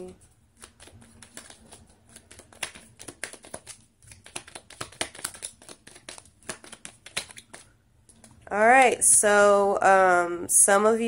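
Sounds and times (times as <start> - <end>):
cards being shuffled: 0.0 - 8.4.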